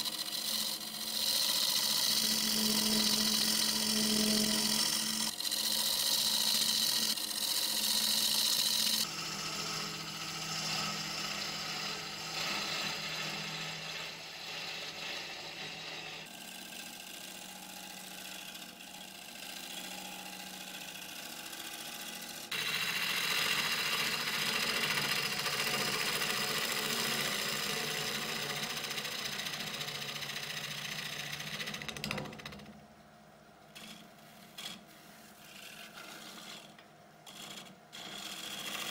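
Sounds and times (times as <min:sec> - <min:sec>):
gouge scraping wood: 0:00.0 - 0:16.4, 0:33.7 - 0:38.9
wood lathe humming: 0:00.0 - 0:32.8, 0:33.7 - 0:38.9.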